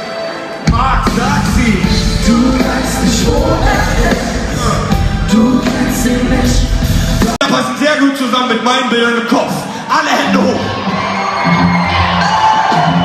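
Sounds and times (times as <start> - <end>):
live band playing pop-rap: 0.0 - 8.4
person singing: 0.7 - 7.4.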